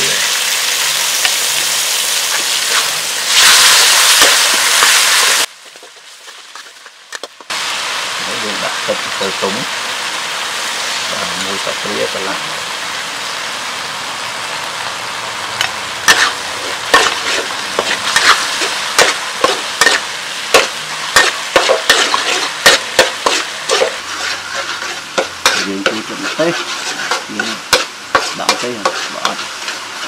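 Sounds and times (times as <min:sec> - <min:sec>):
food sizzling: 0:00.0 - 0:30.0
metal spatula scraping wok: 0:16.0 - 0:30.0.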